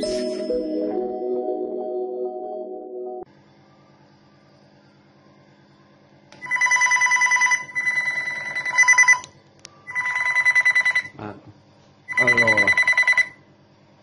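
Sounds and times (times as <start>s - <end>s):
trilling electronic intercom ring: 6.4s - 9.2s, 12.1s - 13.4s.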